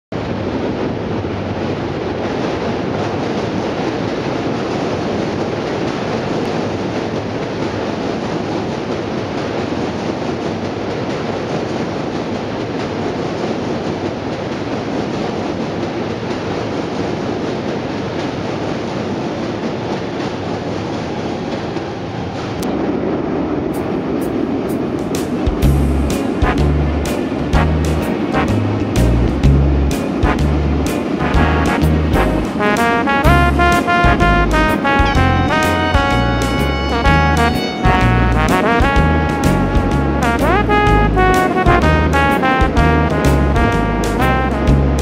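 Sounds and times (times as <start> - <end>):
train rumbling over steel bridge: 0.1 - 45.0.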